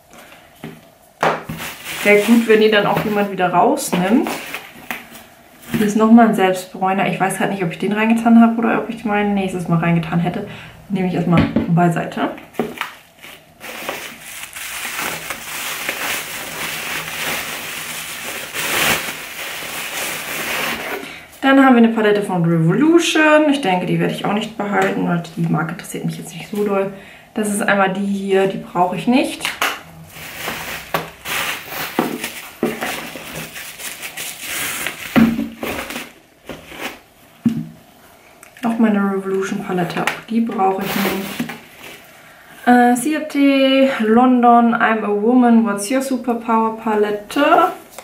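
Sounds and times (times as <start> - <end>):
bubble wrap crinkling: 1.2 - 5.8, 12.5 - 21.1, 29.5 - 37.1, 40.7 - 42.2.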